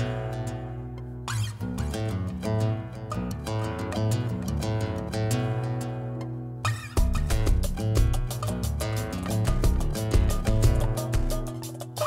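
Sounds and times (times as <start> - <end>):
plucked guitar: 0.0 - 12.0
steady bass line: 4.0 - 12.0.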